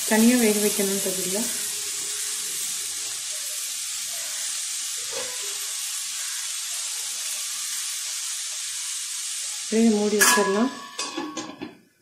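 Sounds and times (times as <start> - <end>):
vegetables sizzling in oil: 0.0 - 11.6.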